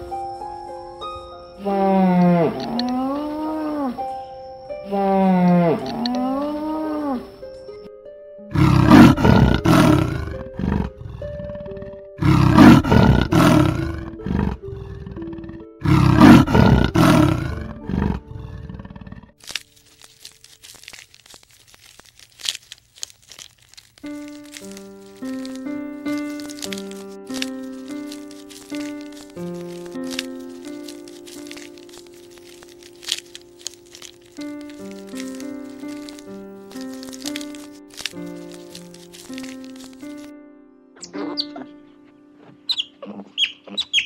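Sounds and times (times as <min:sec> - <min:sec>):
soft background music: 0:00.0 - 0:44.0
large animal roaring: 0:08.5 - 0:19.3.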